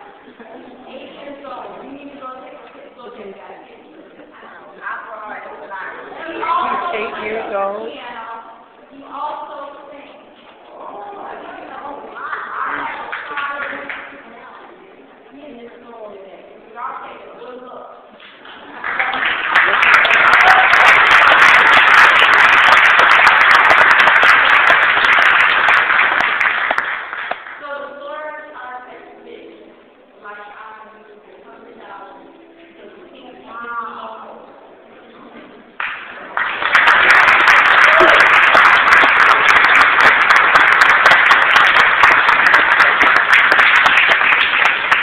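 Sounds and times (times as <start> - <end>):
voice in crowd: 0.0 - 19.3
audience applauding: 18.4 - 27.6, 35.8 - 45.0.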